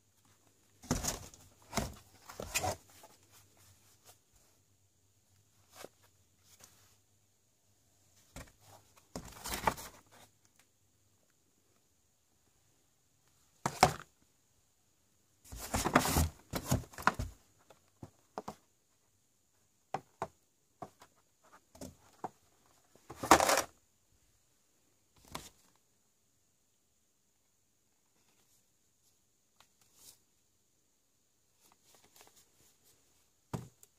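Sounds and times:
cardboard boxes rustling and scraping: 0.7s - 4.4s, 8.2s - 10.3s, 15.5s - 18.6s, 20.8s - 23.7s.

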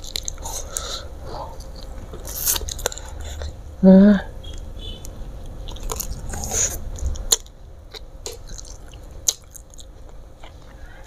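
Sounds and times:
wet chewing and lip smacks: 0.0s - 0.9s, 5.6s - 10.8s.

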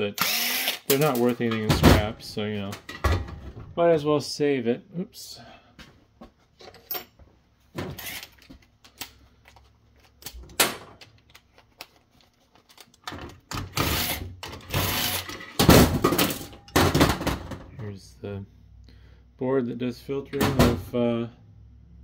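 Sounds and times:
cordless drill driving screws: 0.2s - 1.1s, 8.0s - 8.3s, 13.7s - 15.4s.

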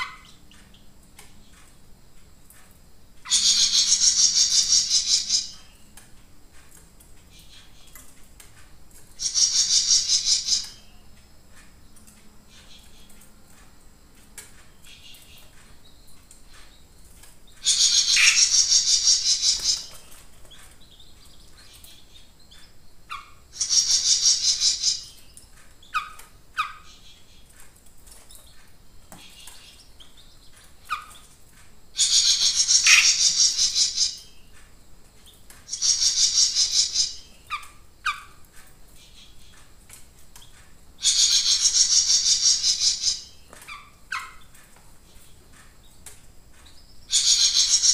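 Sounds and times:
songbird rattling trills: 3.2s - 6.0s, 9.1s - 11.0s, 14.7s - 28.6s, 32.0s - 34.6s, 35.3s - 38.4s, 40.4s - 47.9s.

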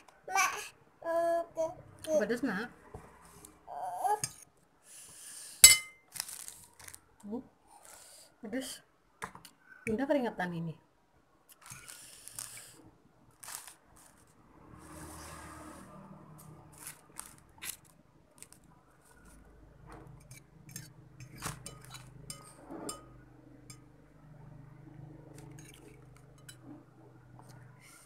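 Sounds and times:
utensil clinking on a dish: 20.2s - 23.9s, 25.4s - 26.7s.

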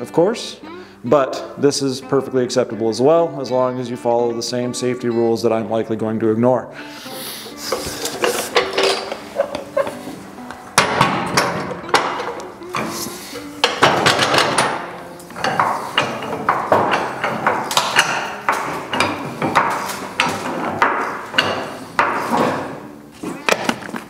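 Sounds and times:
floor jack clicking and clanking: 7.6s - 24.0s.

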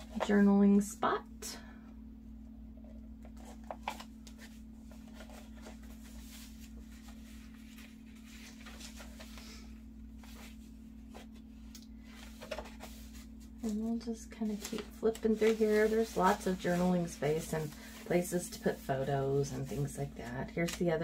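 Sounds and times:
steady low hum: 0.0s - 21.0s
paper pages rustling: 3.2s - 18.7s.

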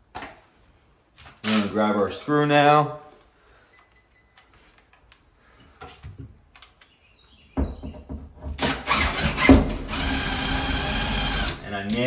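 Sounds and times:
faint clicks and handling noises: 3.2s - 7.0s
cordless drill driving into wood: 8.6s - 11.6s.

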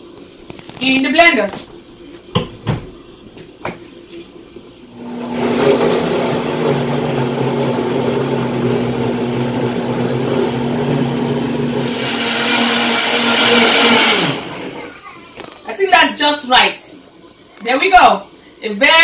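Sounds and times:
blender motor humming: 4.9s - 15.5s.

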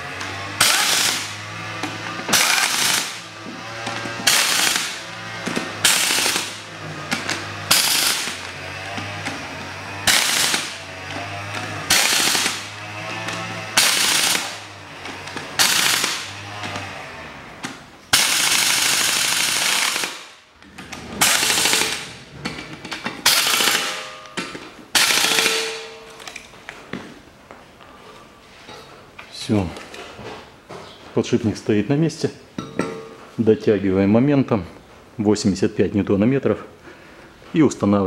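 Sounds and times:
impact wrench hammering: 0.2s - 17.0s, 17.6s - 26.4s.

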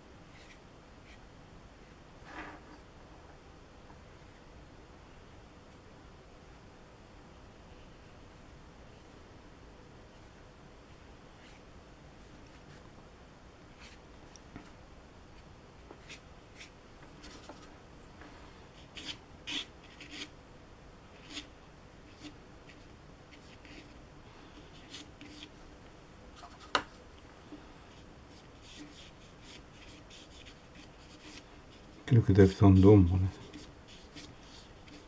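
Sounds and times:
paintbrush strokes on paper: 16.0s - 20.3s, 21.1s - 25.6s, 26.3s - 35.0s.

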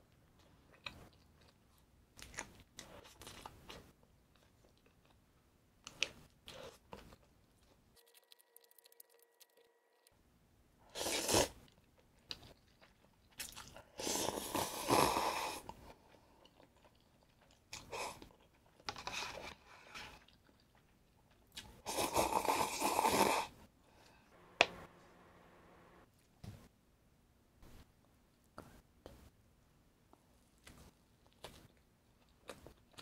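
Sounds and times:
person chewing food: 0.2s - 10.1s, 11.0s - 14.7s, 15.6s - 23.3s, 30.6s - 33.0s.

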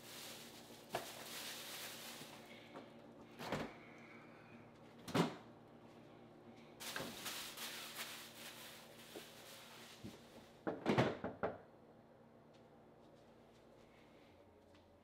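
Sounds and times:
low steady hum: 0.0s - 10.6s
knocks and thuds in refrigerator: 10.6s - 11.6s.

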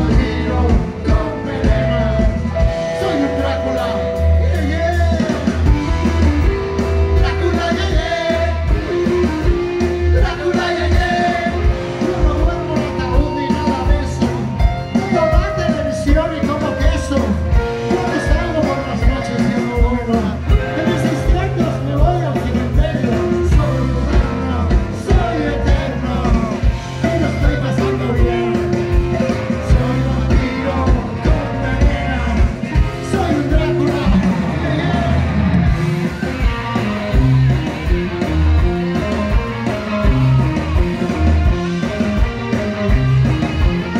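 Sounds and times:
lead vocal singing: 0.0s - 6.0s, 7.0s - 35.8s
bass guitar: 0.0s - 43.9s
distorted electric guitars: 0.0s - 43.9s
drum kit beat: 0.0s - 43.9s.

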